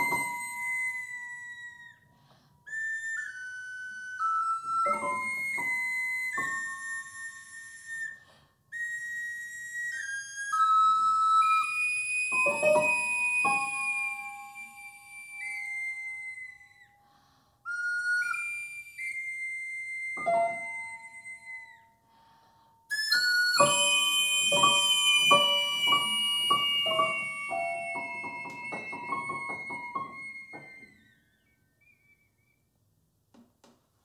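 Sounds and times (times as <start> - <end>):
high held piping tones: 0.0 - 33.5
out-of-tune piano notes: 12.3 - 14.7, 23.5 - 30.9.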